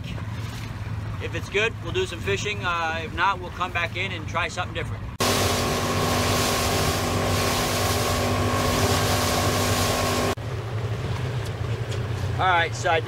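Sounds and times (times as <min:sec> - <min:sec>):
constant whine: 0:05.2 - 0:13.0
motorboat engine drone: 0:05.2 - 0:13.0.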